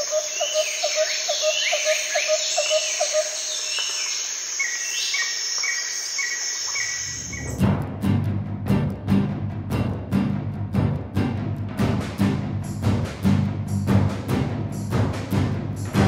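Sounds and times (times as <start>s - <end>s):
insects buzzing drone: 0.0s - 7.5s
low insect chirp: 0.0s - 7.6s.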